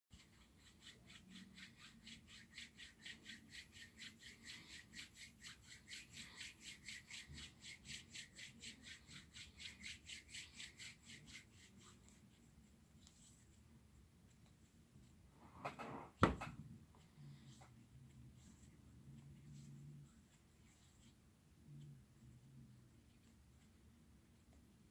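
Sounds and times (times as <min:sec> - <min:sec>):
hands rubbing lotion: 0:00.2 - 0:15.2.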